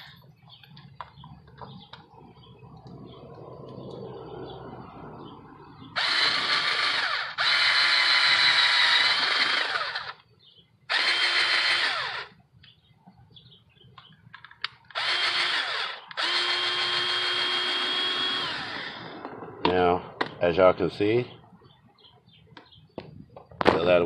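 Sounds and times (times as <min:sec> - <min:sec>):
cordless drill whining: 0:05.9 - 0:10.3, 0:10.9 - 0:12.4, 0:14.6 - 0:19.2.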